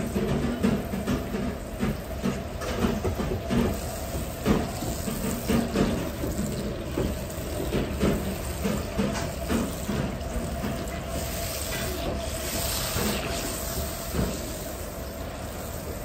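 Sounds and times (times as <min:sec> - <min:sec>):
wok burner roar: 0:00.0 - 0:16.0.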